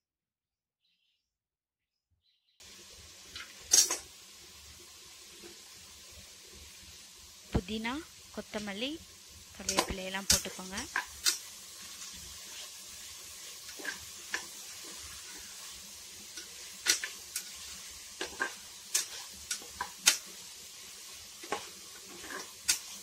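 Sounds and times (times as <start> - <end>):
vegetables sizzling in pot: 2.6 - 23.0
spoon scraping and knocking pot: 21.4 - 22.9.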